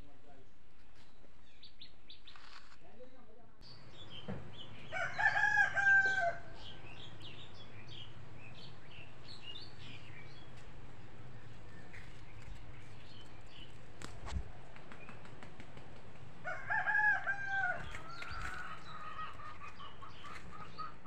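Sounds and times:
small birds chirping: 0:00.0 - 0:15.9, 0:17.7 - 0:21.0
rooster crowing: 0:04.9 - 0:06.7, 0:16.4 - 0:19.3.

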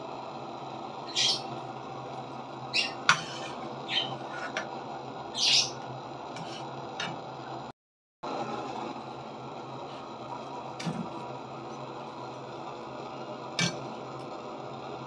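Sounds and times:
steady background hum: 0:00.0 - 0:07.7, 0:08.3 - 0:15.0
spatula scraping a wok: 0:02.9 - 0:04.7, 0:06.3 - 0:07.2.

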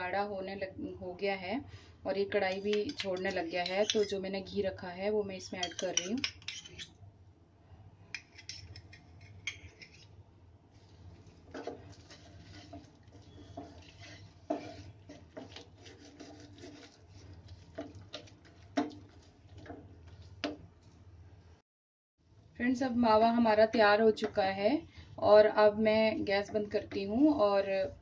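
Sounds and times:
wooden spatula scraping pan: 0:10.8 - 0:20.6.

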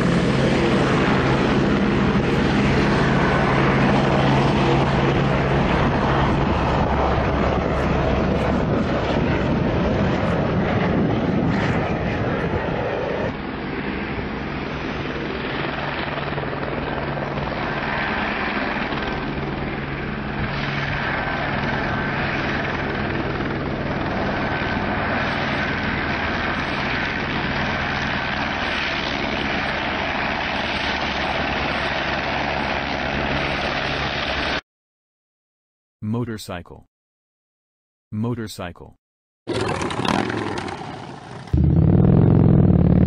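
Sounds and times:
helicopter rotor and engine: 0:00.0 - 0:34.6, 0:39.5 - 0:43.0.

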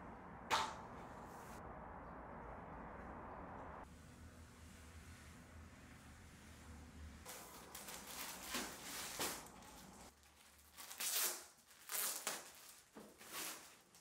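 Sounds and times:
plastic wrapping crinkling: 0:07.3 - 0:14.0.

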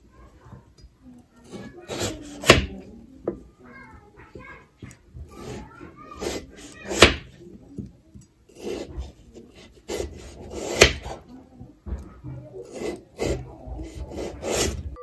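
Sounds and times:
knife slicing potato: 0:01.4 - 0:03.4, 0:04.8 - 0:07.9, 0:08.5 - 0:15.0
knife knocking on wooden board: 0:06.6 - 0:08.2, 0:10.5 - 0:14.4.

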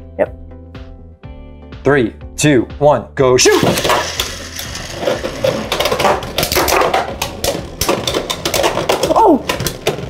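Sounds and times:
spinning tops clashing: 0:03.5 - 0:09.0.

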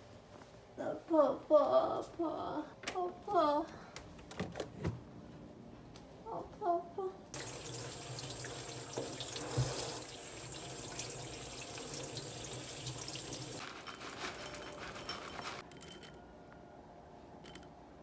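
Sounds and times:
tap running into sink: 0:07.4 - 0:13.5
bowl rinsed under water: 0:07.4 - 0:13.6.

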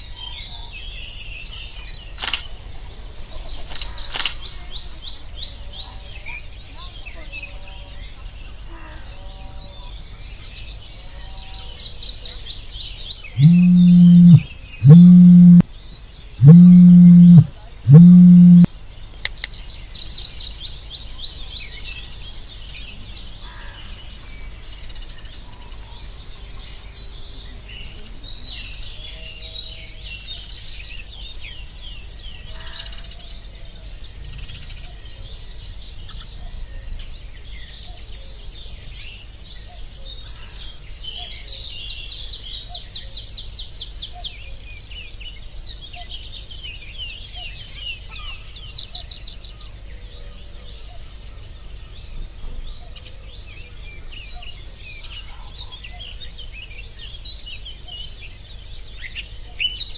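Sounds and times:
small birds chirping: 0:00.0 - 0:59.9
smartphone vibrating: 0:13.4 - 0:15.6, 0:16.4 - 0:18.7.

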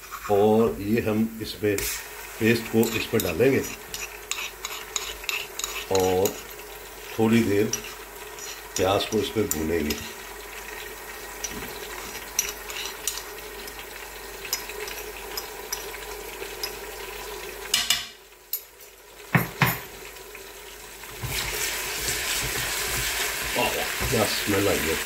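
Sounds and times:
spoon scraping stone mortar: 0:00.0 - 0:00.4, 0:02.8 - 0:06.6, 0:07.6 - 0:10.2, 0:11.4 - 0:13.8
onions sizzling in oil: 0:00.0 - 0:25.0.

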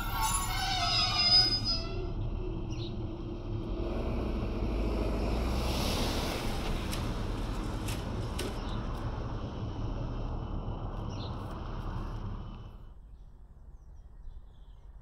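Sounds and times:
car driving past: 0:02.0 - 0:13.0.

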